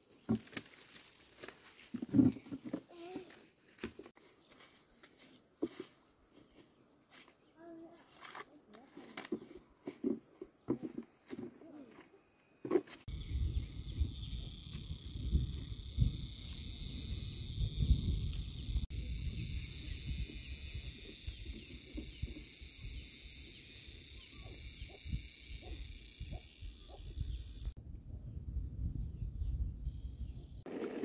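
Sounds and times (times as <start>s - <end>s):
insects shrilling: 13.1s - 27.8s.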